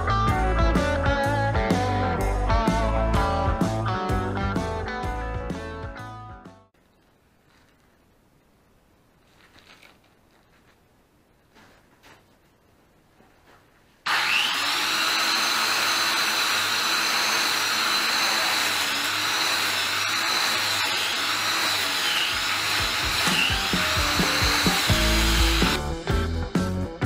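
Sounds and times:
background music: 0.0 - 6.7, 22.8 - 27.0.

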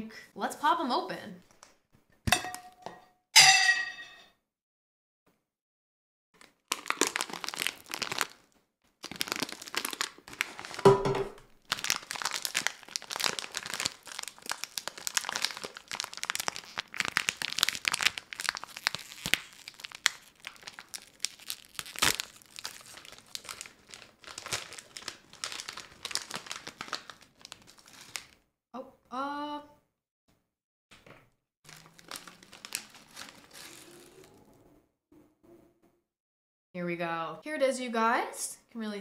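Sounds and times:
sharp metallic clank: 2.3 - 4.3
foil bag crinkling: 6.4 - 28.4, 31.7 - 34.4.

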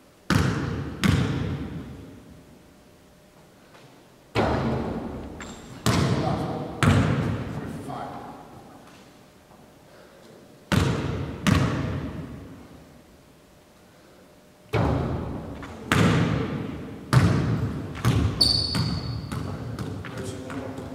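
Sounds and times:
basketball bouncing on hardwood floor: 0.3 - 1.9, 4.4 - 6.2, 6.8 - 7.5, 10.7 - 12.3, 14.7 - 20.8
high squeak: 18.4 - 19.3.

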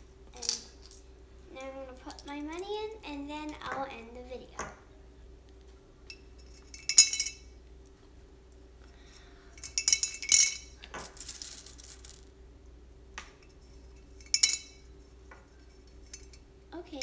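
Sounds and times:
coins clinking into piggy bank: 0.4 - 1.0, 9.6 - 12.2.

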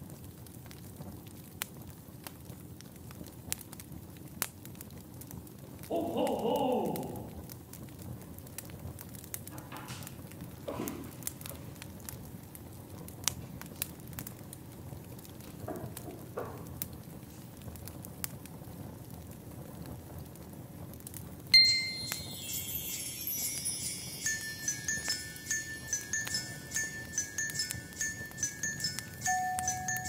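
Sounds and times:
christmas music with jingling bells: 21.6 - 30.0
soft crackling: 21.6 - 30.0.

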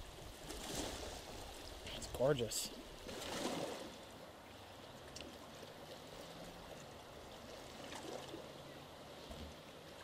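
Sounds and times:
water lapping against dock: 0.0 - 10.0.

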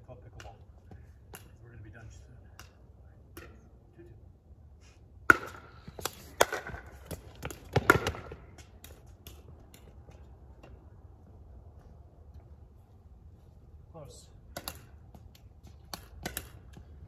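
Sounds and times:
ball bouncing on hard court: 6.4 - 8.4.

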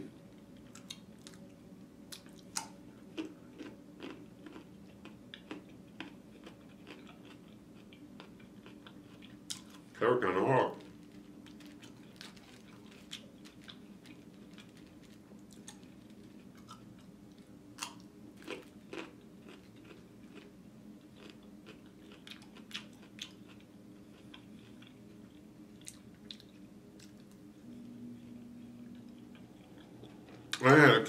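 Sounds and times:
faint low hum: 0.0 - 31.0
crunchy chewing: 2.1 - 10.0, 10.8 - 27.5, 28.2 - 30.6.

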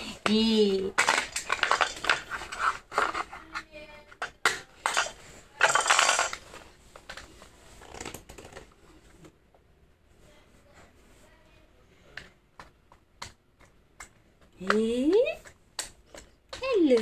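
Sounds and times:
baby handling toy on floor: 0.8 - 9.3.

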